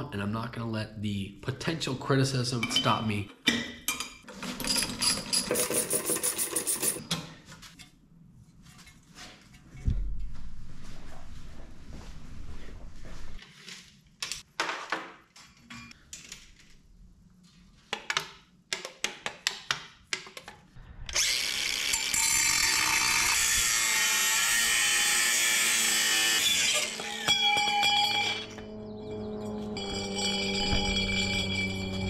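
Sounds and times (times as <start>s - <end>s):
metal parts clinking and knocking: 3.5s - 7.1s
angle grinder cutting steel: 21.1s - 32.0s.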